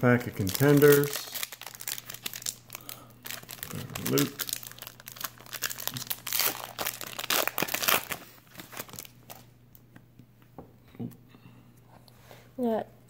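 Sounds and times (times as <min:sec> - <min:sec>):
wrapper crinkling and tearing: 0:00.2 - 0:09.5.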